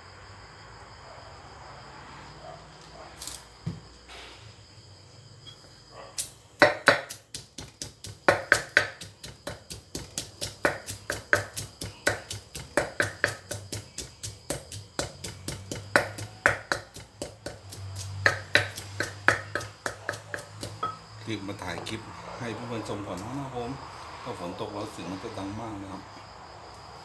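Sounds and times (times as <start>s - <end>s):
wooden pestle pounding in mortar: 6.6s - 22.0s.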